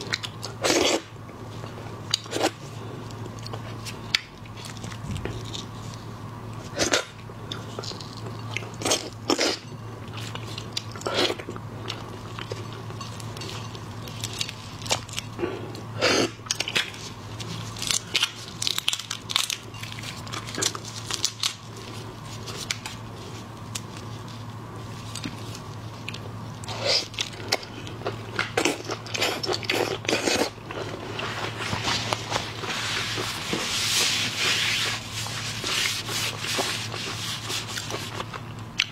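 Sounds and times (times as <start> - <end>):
crunching prawn shells: 16.4 - 24.1.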